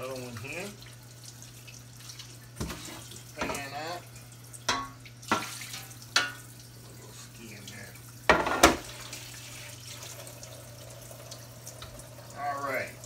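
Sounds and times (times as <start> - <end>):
kitchen tap running: 0.0 - 13.0.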